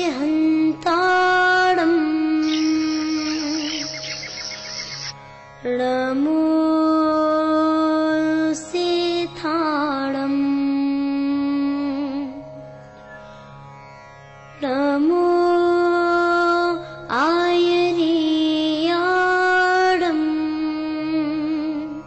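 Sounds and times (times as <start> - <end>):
person chanting with long notes: 1.1 - 5.1.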